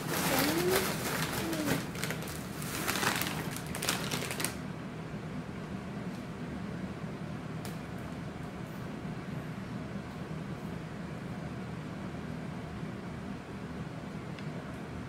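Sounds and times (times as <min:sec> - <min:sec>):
chip bag crinkling: 0:00.0 - 0:04.6
person humming: 0:00.2 - 0:01.9
steady low hum: 0:04.6 - 0:15.0.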